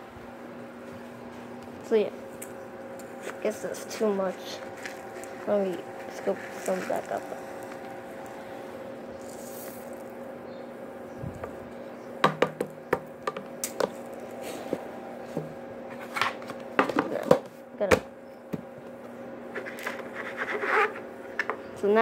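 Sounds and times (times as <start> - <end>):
low hum: 0.0 - 16.8
spoon scraping seed container: 3.2 - 7.9, 9.2 - 10.1
birdseed rattling: 9.2 - 10.2.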